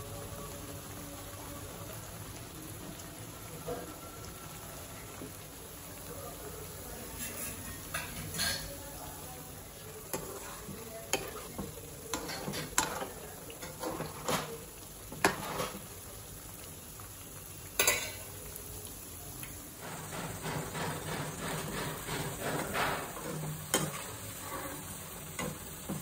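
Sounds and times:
batter deep-frying in oil: 0:00.0 - 0:26.0
metal spoon knocking on pan: 0:19.9 - 0:24.0.

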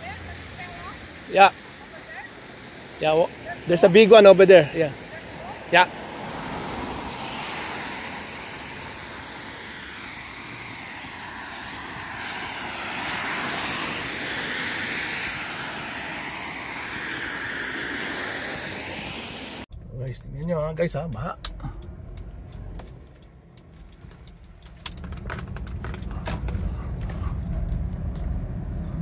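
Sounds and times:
tyres hissing on wet street: 0:00.0 - 0:19.7.

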